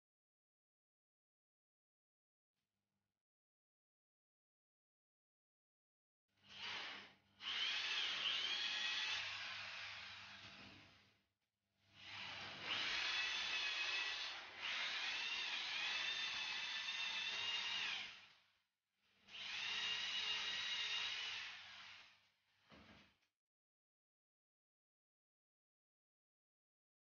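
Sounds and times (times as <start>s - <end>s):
electric drill motor whine: 6.5s - 10.9s, 12.0s - 18.3s, 19.3s - 22.2s.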